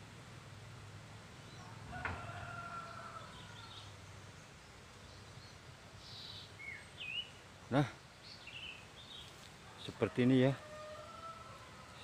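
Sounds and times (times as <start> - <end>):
small birds chirping: 1.3 - 10.0
rooster crowing: 1.6 - 3.9, 9.7 - 12.0.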